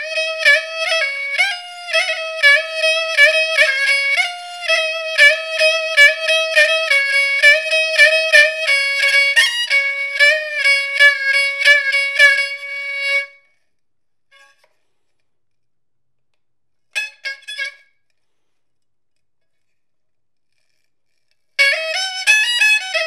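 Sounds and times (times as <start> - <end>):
bowed fiddle playing: 0.0 - 13.4, 21.6 - 23.0.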